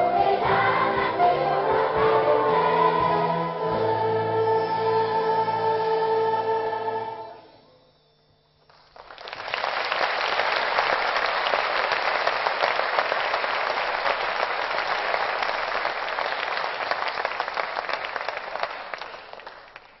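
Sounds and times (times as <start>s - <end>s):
choir and orchestra final chord: 0.0s - 7.5s
audience applause: 8.7s - 20.0s.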